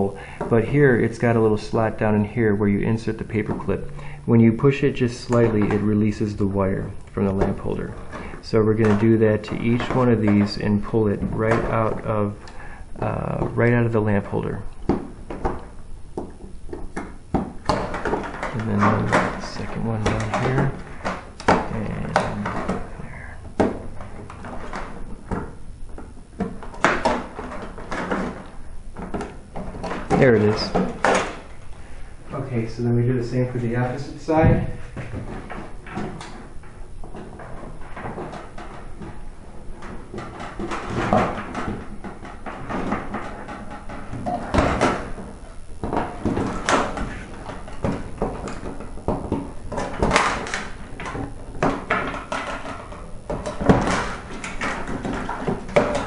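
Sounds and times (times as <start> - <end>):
wire scraping: 1.0 - 56.0
small clicks and knocks: 35.0 - 56.0.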